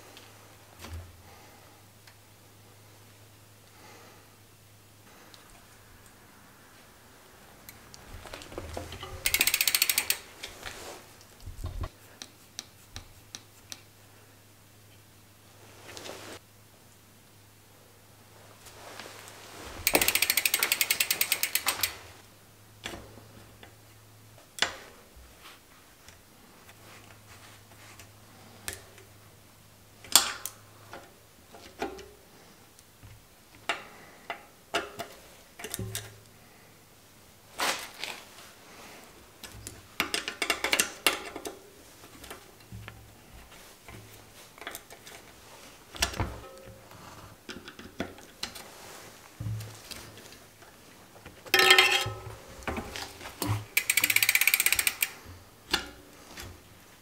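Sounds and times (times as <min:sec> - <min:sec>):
bicycle freewheel ratchet clicking: 0:08.9 - 0:10.5, 0:19.8 - 0:22.1, 0:53.4 - 0:55.2.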